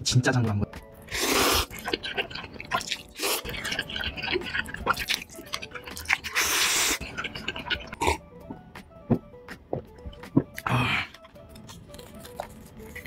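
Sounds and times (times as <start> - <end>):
wet slurping of noodles: 1.1 - 8.0.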